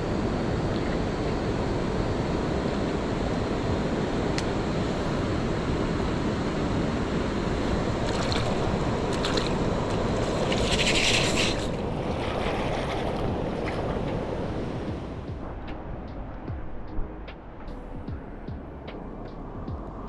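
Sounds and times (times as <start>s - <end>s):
mountain stream rushing: 6.2s - 15.2s.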